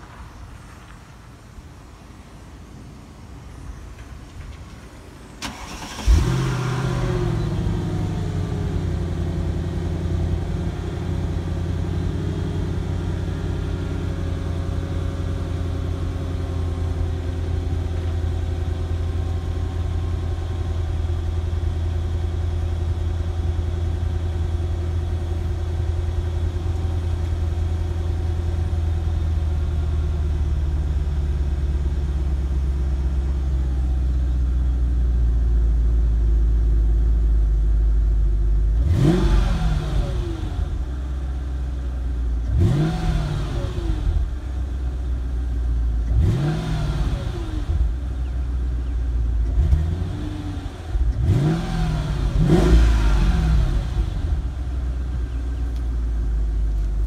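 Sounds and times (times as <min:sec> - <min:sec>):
car engine idling: 0:05.0 - 0:57.0
engine revving: 0:05.4 - 0:14.7, 0:38.7 - 0:40.9, 0:42.4 - 0:44.4, 0:46.0 - 0:48.0, 0:49.4 - 0:54.8.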